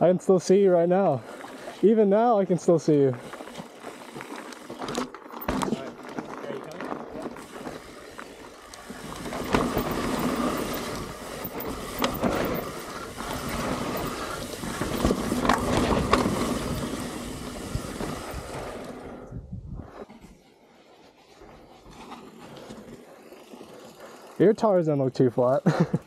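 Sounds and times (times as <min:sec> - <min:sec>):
tyres rushing on dirt: 0:00.0 - 0:19.2, 0:21.3 - 0:26.0
bike knocking and rattling: 0:02.8 - 0:19.0
wind on microphone: 0:16.5 - 0:20.0.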